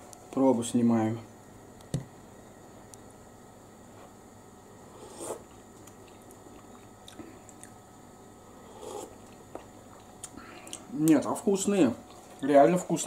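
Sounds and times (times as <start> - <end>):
man chewing: 5.0 - 7.8, 8.6 - 10.9.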